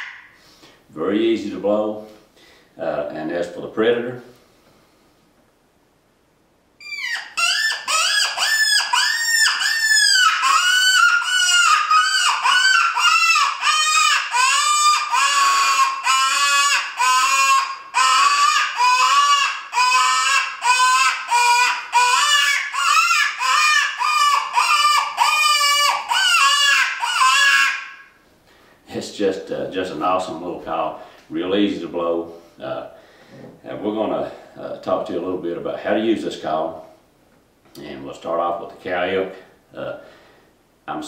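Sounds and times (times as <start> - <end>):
predator call quavering squeals: 0.0 - 0.4, 6.8 - 28.2.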